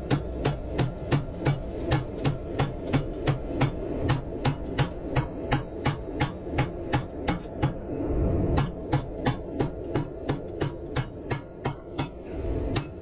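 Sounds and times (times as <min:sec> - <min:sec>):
hammer blows on hot metal: 0:00.0 - 0:13.0
steady hum: 0:00.0 - 0:13.0.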